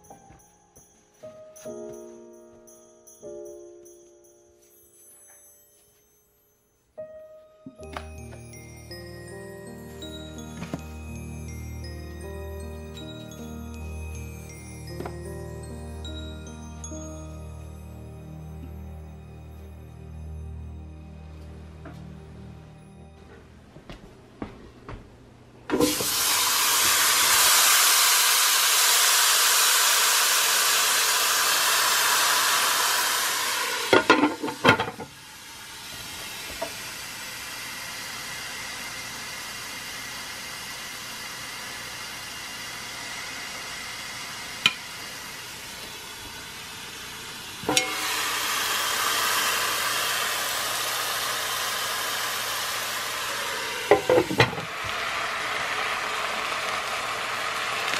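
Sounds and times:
meat sizzling in a pot: 25.7 - 57.9.

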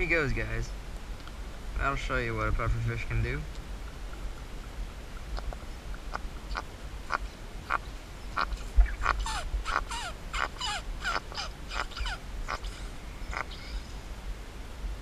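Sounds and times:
puffer fish croaking and squeaking: 8.4 - 13.7.

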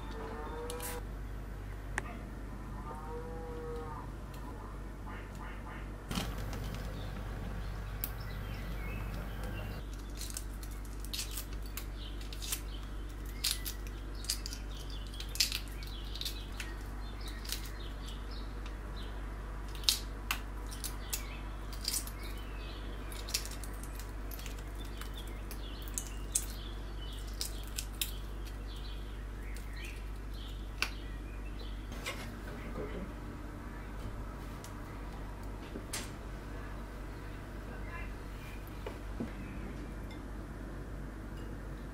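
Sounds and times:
steady low hum: 0.0 - 41.9
egg shell cracking: 9.8 - 17.8, 19.6 - 22.4, 23.1 - 28.8.

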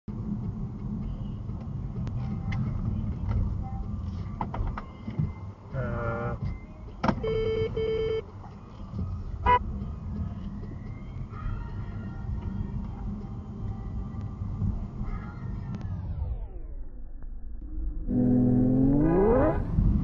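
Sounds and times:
road and engine rumble: 0.1 - 17.1, 18.0 - 20.0
short steady beeps: 7.2 - 8.2.

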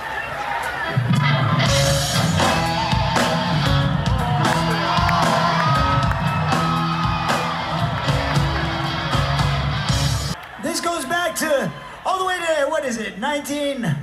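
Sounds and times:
live rock band playing: 0.6 - 10.4.

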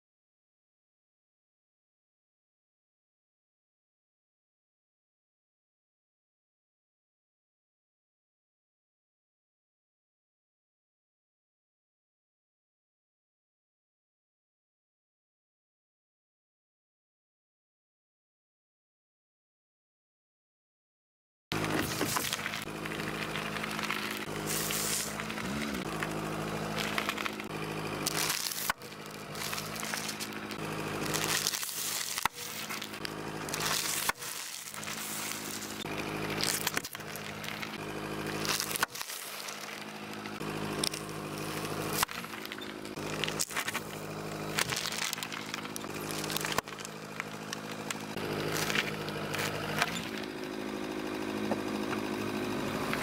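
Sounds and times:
tyre crushing food and packaging: 21.5 - 53.0
car engine idling: 21.6 - 53.0.

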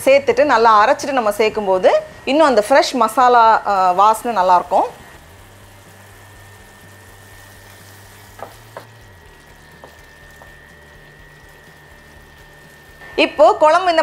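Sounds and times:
gravy sizzling in a pan: 2.9 - 14.0.

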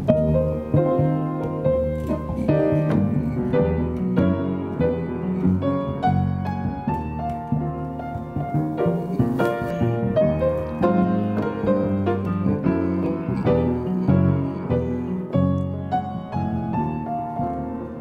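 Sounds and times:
latin jazz instrumental: 0.0 - 18.0.

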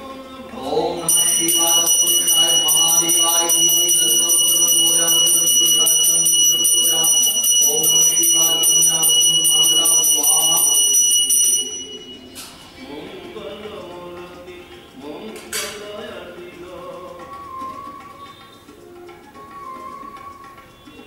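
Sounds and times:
hand bell ringing rapidly: 1.1 - 12.3.

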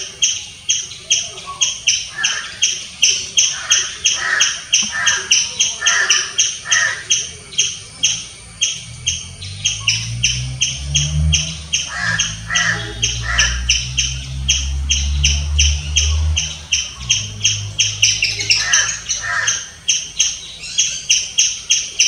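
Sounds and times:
squirrel chirping: 0.0 - 22.0
low rumble: 7.8 - 19.2.

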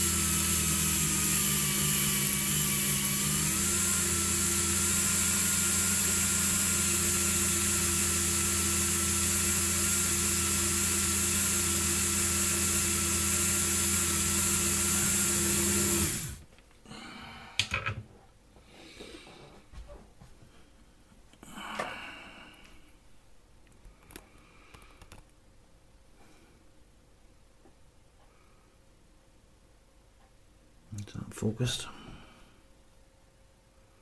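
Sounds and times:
rotary tool running: 0.0 - 16.4.

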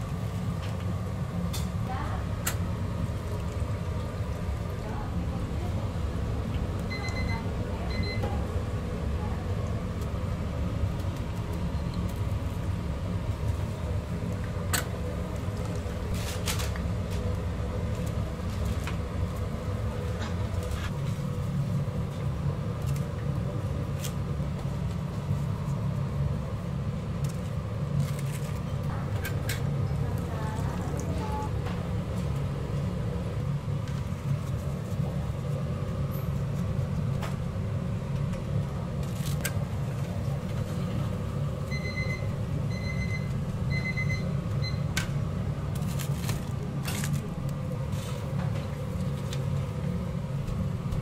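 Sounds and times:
food frying in deep fryer: 0.0 - 51.0
kitchen low rumble: 0.0 - 51.0.

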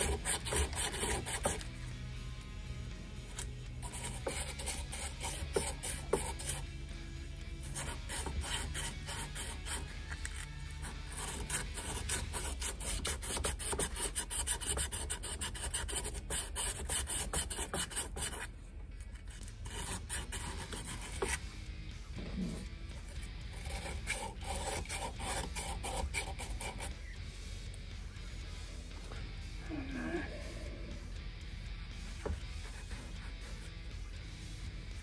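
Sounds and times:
sandpaper scratching on metal: 0.0 - 1.7, 7.7 - 10.0, 10.8 - 18.5.

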